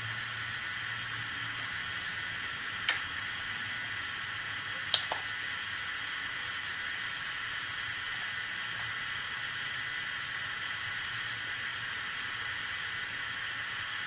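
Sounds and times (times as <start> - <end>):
model steam locomotive hiss: 5.3 - 14.0.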